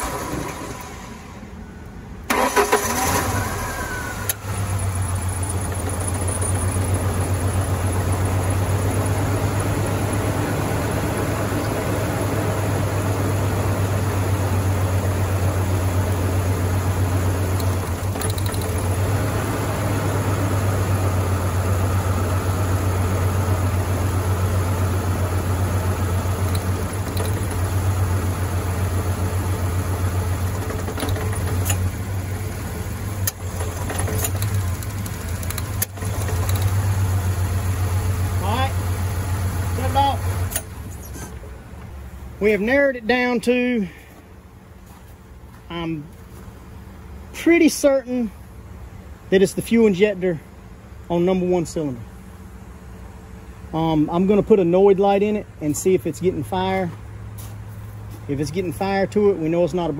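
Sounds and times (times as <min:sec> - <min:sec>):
engine starting and idling: 0:00.0 - 0:01.6, 0:02.2 - 0:10.8, 0:15.4 - 0:20.4, 0:25.6 - 0:37.4.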